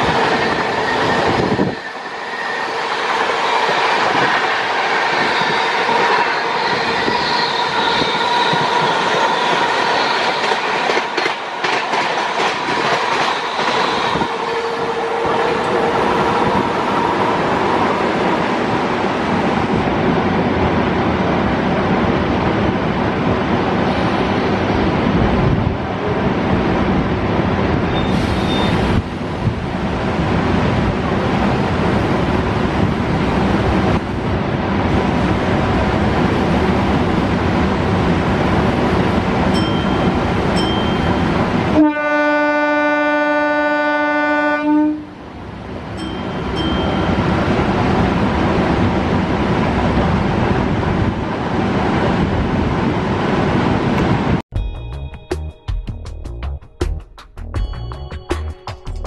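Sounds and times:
train wheels on rails rattling: 0:00.0 - 0:19.6
wind through open door: 0:00.0 - 0:41.7
train horn: 0:13.2 - 0:16.2, 0:41.7 - 0:45.2.

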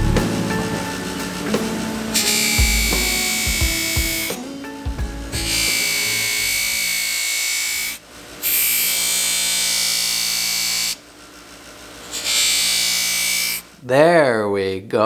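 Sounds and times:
knife grinding on buffer wheel: 0:02.1 - 0:04.4, 0:05.4 - 0:11.0, 0:12.0 - 0:13.6.

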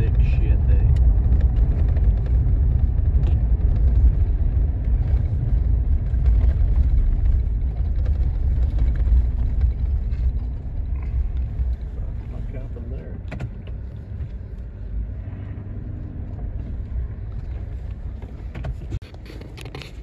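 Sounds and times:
faint rattles and ticks: 0:00.0 - 0:15.6
pickup engine and tyre rumble: 0:00.0 - 0:20.0.

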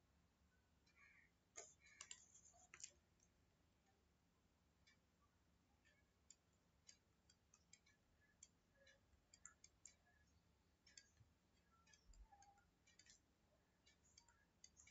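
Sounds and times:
stylus tapping on tablet screen: 0:01.6 - 0:03.0, 0:05.9 - 0:14.9.

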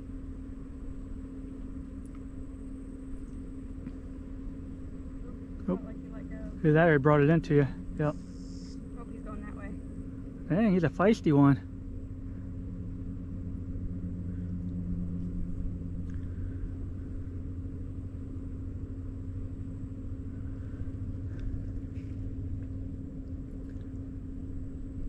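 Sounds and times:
low motor rumble: 0:00.0 - 0:25.0.

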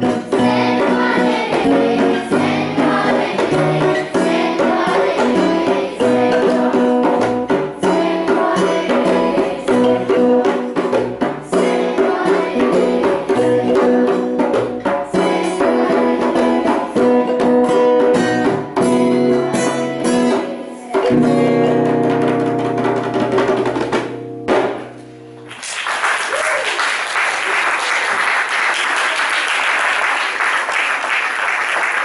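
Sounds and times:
group singing folk song: 0:00.0 - 0:17.7, 0:19.1 - 0:22.3
djembe drum strokes: 0:00.0 - 0:25.5
applause: 0:25.5 - 0:32.0.

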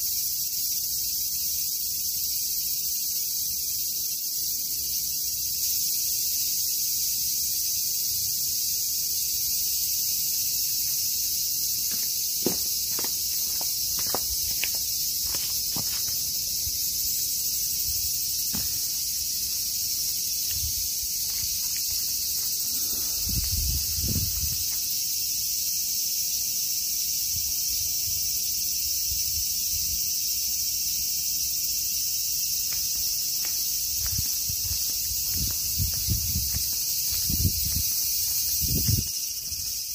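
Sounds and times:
high-pitched insect chorus: 0:00.0 - 0:39.9
sandal footsteps on steps: 0:10.6 - 0:16.8, 0:18.4 - 0:22.6, 0:32.6 - 0:39.9.

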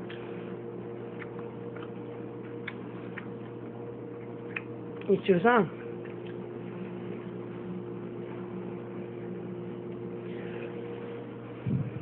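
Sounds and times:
appliance mechanical hum: 0:00.0 - 0:12.0.

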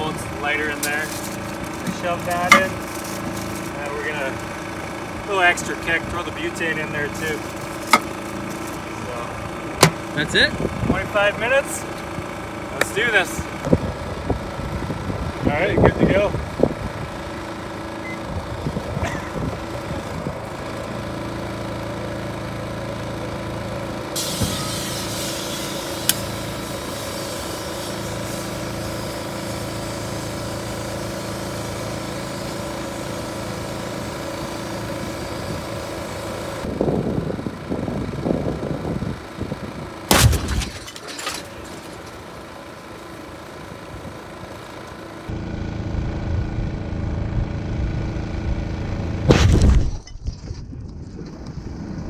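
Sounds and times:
portable generator running: 0:00.0 - 0:49.8
loud bang of canister bursting: 0:40.1 - 0:40.8, 0:49.2 - 0:50.0.

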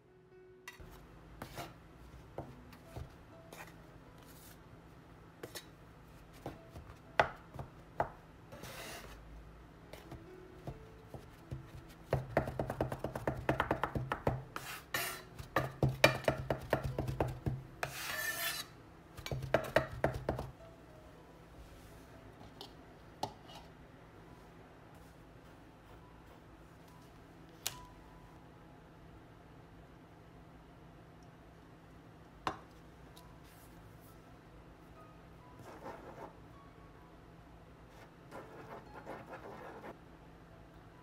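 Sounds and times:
scraper sweeping countertop: 0:00.8 - 0:01.8, 0:03.6 - 0:04.6, 0:08.5 - 0:09.2, 0:14.6 - 0:15.3, 0:17.8 - 0:18.7
bench scrapers chopping on countertop: 0:12.2 - 0:20.4.

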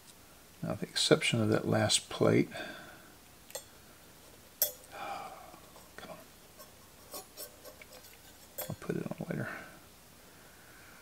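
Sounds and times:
small metal clicks and taps: 0:03.5 - 0:03.7.

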